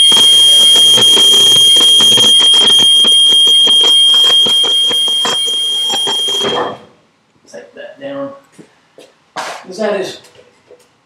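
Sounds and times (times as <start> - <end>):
high-pitched electronic alert tone: 0.0 - 6.9.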